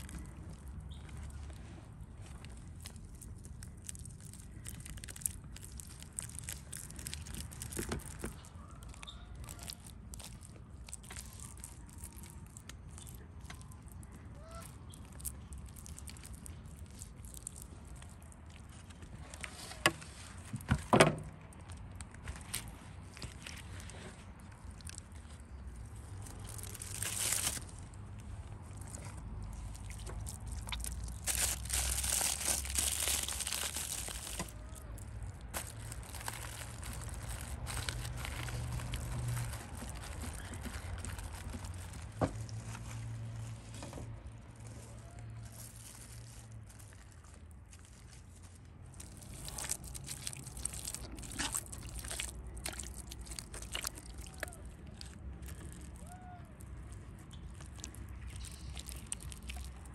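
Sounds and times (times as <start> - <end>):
aluminium foil crinkling: 0.0 - 20.6, 21.4 - 43.5, 44.3 - 59.9
hands patting wet mud: 49.0 - 56.4.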